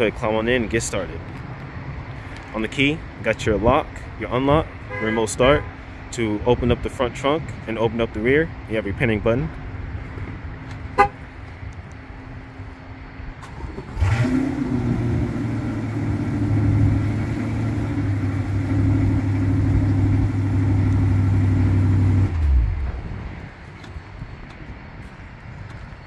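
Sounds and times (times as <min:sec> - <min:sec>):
car engine starting and idling: 0:10.6 - 0:23.4.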